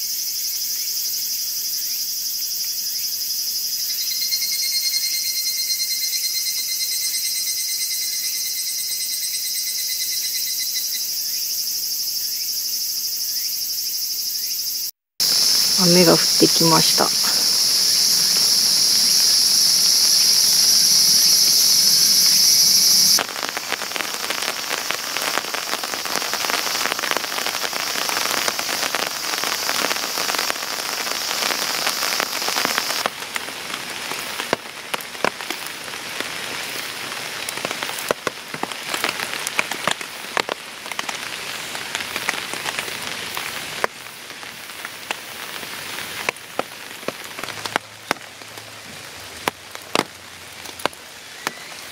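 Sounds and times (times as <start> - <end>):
insect chorus: 0.0 - 48.9, 49.7 - 51.9
rain pattering on tarp: 15.2 - 51.9.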